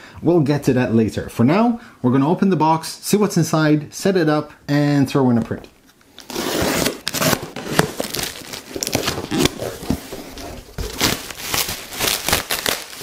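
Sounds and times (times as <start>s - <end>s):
cardboard box being opened: 6.3s - 12.8s
plastic bag crinkling: 7.1s - 13.0s.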